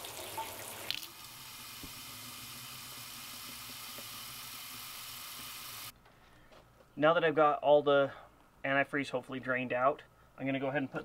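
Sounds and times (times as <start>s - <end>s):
faucet running into metal sink: 0.0s - 5.9s.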